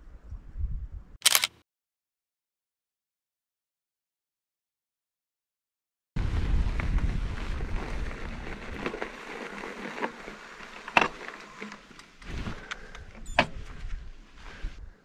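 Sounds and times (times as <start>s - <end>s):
wind on microphone: 0.0s - 1.2s, 6.2s - 9.1s, 12.3s - 15.0s
bike gear clicks and scuffs: 6.8s - 14.6s.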